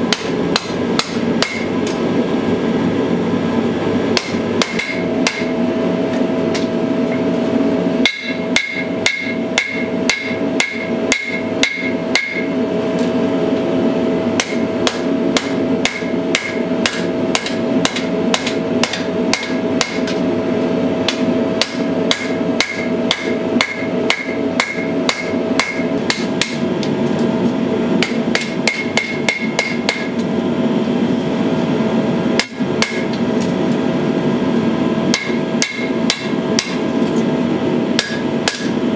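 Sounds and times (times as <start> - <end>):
hammer striking blade on anvil: 0.1 - 2.0, 4.2 - 5.6, 8.0 - 12.6, 14.4 - 20.2, 21.0 - 26.6, 28.0 - 30.2, 32.4 - 33.2, 35.1 - 36.8, 38.0 - 38.8.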